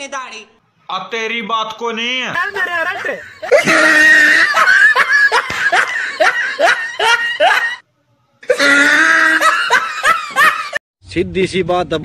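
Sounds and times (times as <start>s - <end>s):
man laughing hard: 2.5s - 7.8s, 8.5s - 10.8s.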